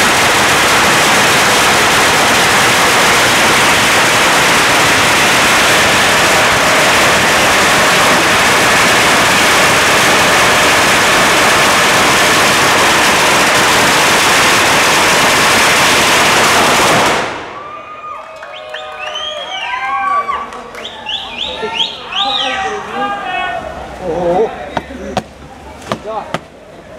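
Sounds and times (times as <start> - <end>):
firecrackers crackling: 0.0 - 17.8, 24.8 - 26.6.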